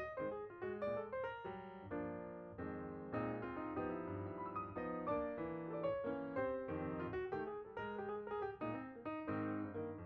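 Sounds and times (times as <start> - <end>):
gentle piano music: 0.0 - 10.0.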